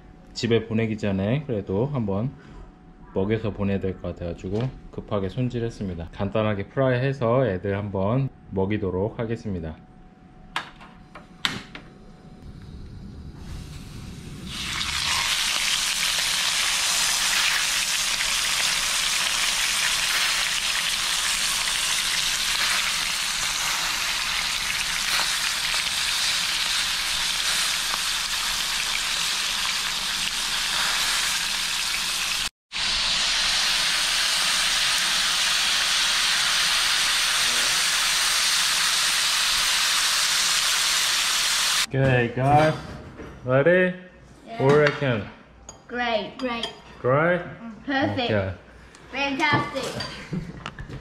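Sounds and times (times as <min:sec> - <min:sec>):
fish sizzling in hot oil: 0:14.5 - 0:41.9.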